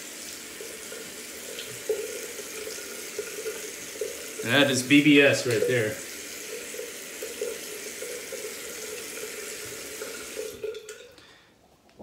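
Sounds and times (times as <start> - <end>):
tap running into sink: 1.5 - 11.0.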